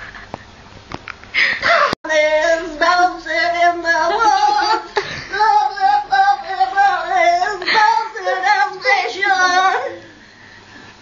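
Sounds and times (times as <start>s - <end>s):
woman singing loudly: 1.7s - 10.1s.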